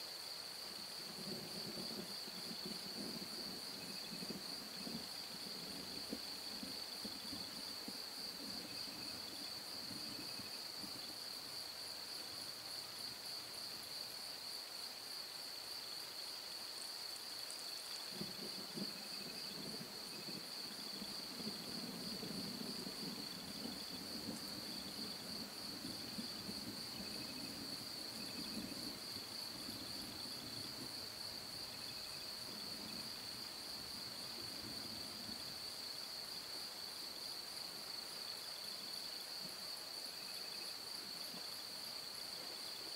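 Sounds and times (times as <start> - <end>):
crickets trilling: 0.0 - 42.9
distant thunder rumbling: 1.0 - 11.1, 18.0 - 35.5.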